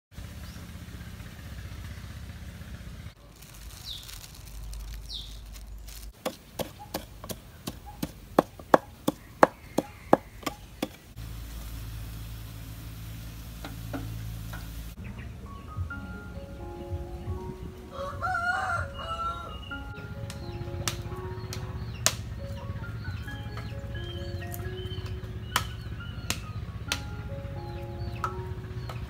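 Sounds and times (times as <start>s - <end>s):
pestle pounding in a mortar: 6.2s - 11.0s.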